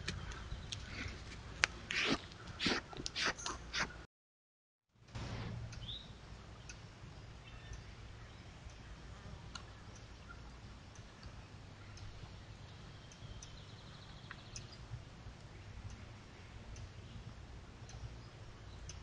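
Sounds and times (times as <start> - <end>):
steady low hum: 5.0 - 19.0
faint clicks and ticks: 5.7 - 19.0.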